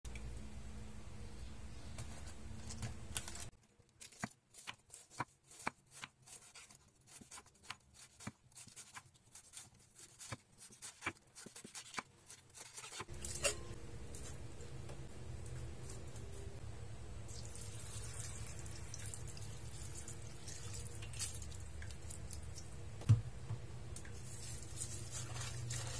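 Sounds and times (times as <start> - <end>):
knife cutting cabbage on board: 4.0 - 13.6
steady low hum: 13.1 - 25.9.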